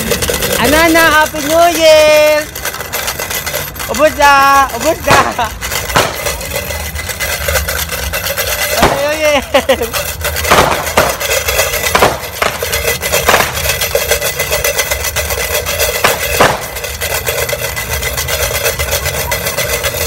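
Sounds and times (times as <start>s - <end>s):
firecrackers crackling: 0.0s - 20.0s
fireworks bangs: 5.0s - 6.4s, 8.7s - 9.3s, 10.4s - 13.6s, 16.0s - 16.7s.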